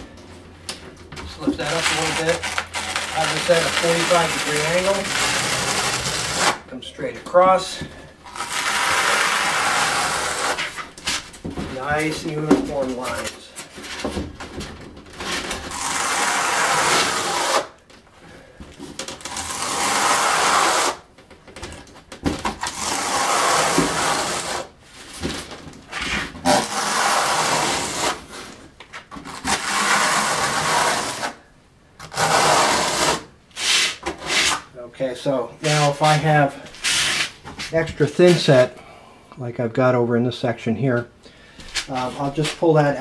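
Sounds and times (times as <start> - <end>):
trowel scraping mortar: 1.4 - 6.6, 25.9 - 28.2.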